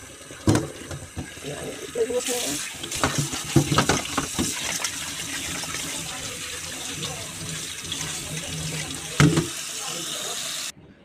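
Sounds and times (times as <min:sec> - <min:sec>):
tap water running into colander: 0:00.0 - 0:10.7.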